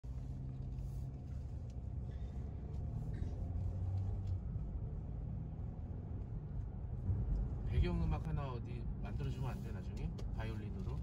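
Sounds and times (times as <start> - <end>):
car engine and tyres rumbling: 0.0 - 11.0.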